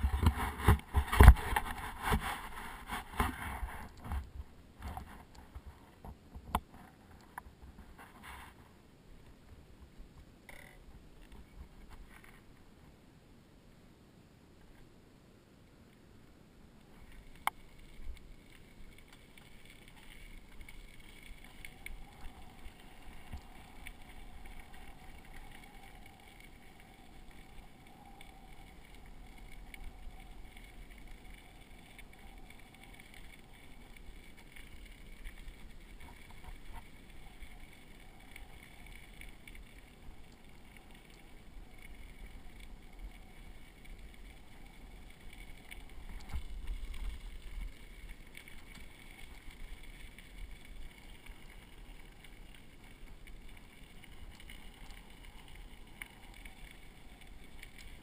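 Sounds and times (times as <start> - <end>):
bicycle tyres rumbling on gravel: 0.0 - 6.1, 16.9 - 58.0.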